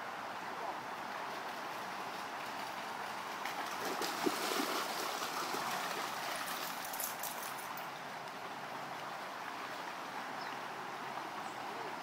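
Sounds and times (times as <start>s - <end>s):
creek water rushing over rocks: 0.0s - 12.0s
faint splashes: 0.7s - 8.0s.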